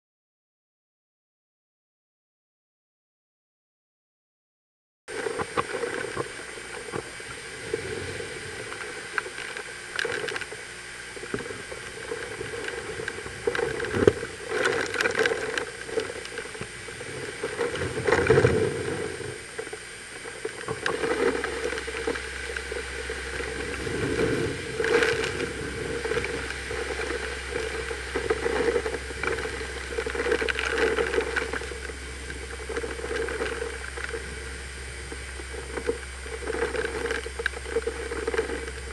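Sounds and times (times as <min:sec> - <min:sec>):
driving rain: 0:05.2 - 0:38.9
wind buffeting microphone: 0:20.8 - 0:38.9.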